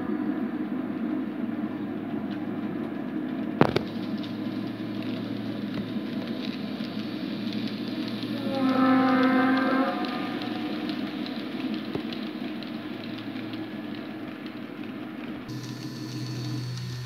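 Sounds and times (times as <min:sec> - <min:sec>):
low train horn: 0:08.3 - 0:10.9
model train running hum: 0:15.5 - 0:17.0.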